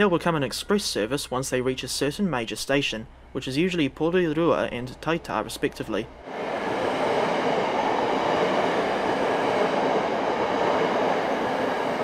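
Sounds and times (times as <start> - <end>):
train wheels rushing on rail: 5.0 - 12.0.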